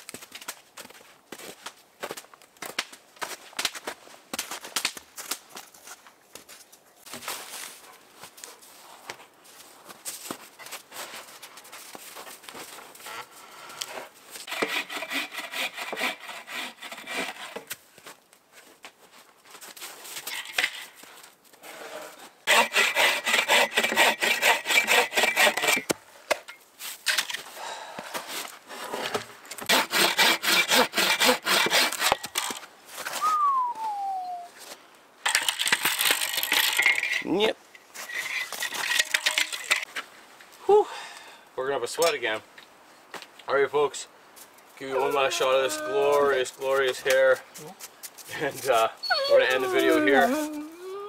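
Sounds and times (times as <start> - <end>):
hand saw cutting a log: 14.4 - 17.7, 22.5 - 25.9, 29.6 - 32.3.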